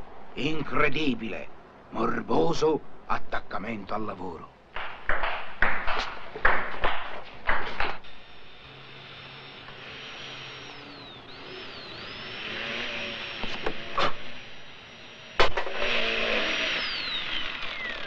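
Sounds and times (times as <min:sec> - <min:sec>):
table tennis ball knocking: 0:04.8 - 0:08.0
steady hiss: 0:05.6 - 0:17.1
faint high whine: 0:08.0 - 0:18.0.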